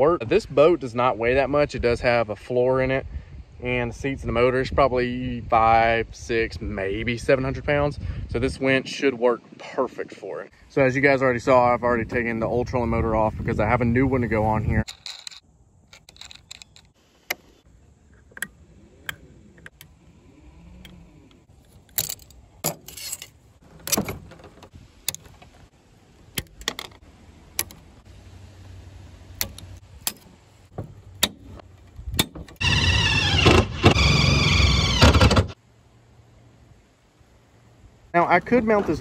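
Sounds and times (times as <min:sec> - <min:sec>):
metallic clicks of hardware: 0:14.8 - 0:19.9, 0:29.4 - 0:30.3.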